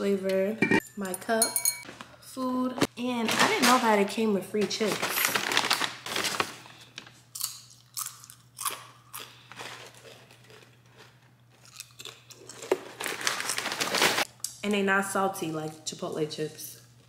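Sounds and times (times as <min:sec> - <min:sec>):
person chewing crunchy chips: 0:07.2 - 0:14.3.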